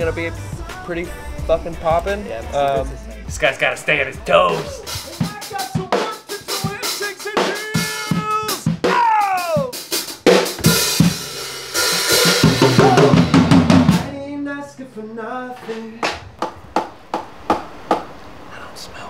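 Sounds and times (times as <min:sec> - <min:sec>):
bass: 0:00.0 - 0:05.2, 0:09.7 - 0:16.8
drum kit beat: 0:00.0 - 0:14.2.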